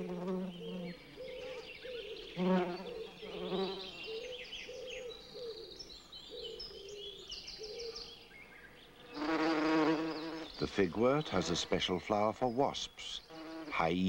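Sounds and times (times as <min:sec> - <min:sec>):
bees buzzing: 0:00.0 - 0:04.0, 0:09.0 - 0:12.2, 0:13.3 - 0:13.9.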